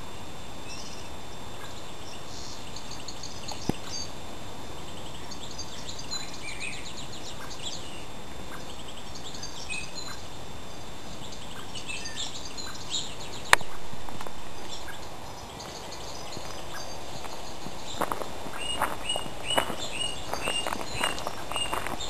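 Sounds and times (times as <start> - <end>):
outdoor background noise: 0.0 - 22.0
small birds chirping: 0.0 - 22.0
loud noise: 13.0 - 22.0.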